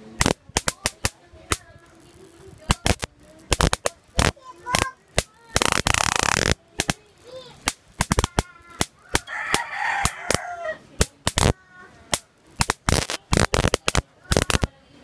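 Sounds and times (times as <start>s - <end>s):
electric sparks snapping: 0.1s - 14.8s
chicken calling: 8.4s - 10.9s.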